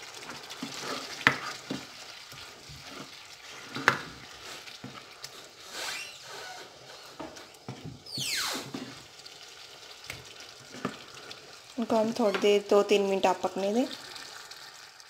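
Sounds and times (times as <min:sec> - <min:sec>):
low sizzle: 0:00.0 - 0:15.0
spatula scraping through sauce: 0:00.4 - 0:07.6.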